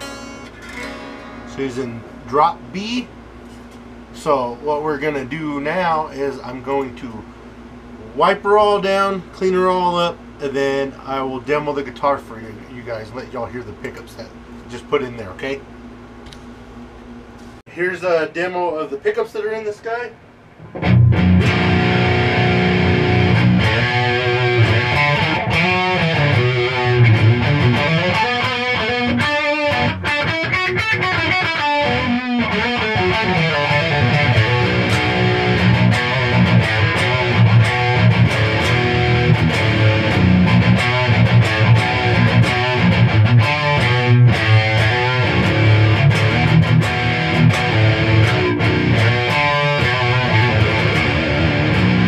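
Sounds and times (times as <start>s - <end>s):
distorted electric guitar riffing: 0.0s - 3.1s, 20.6s - 52.0s.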